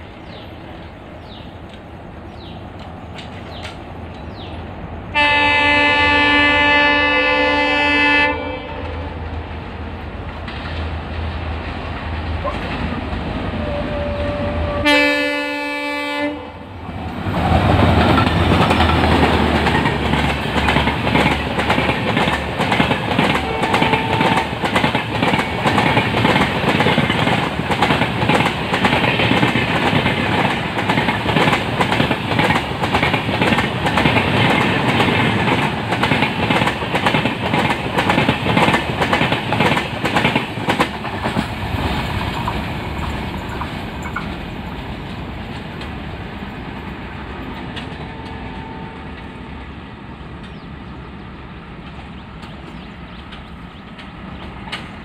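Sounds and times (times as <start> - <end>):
diesel locomotive engine passing: 0.0 - 55.0
locomotive horn: 5.1 - 9.3, 13.5 - 16.8, 23.1 - 24.6, 47.8 - 49.5
train wheels clattering over rail joints: 17.3 - 46.0, 51.8 - 55.0.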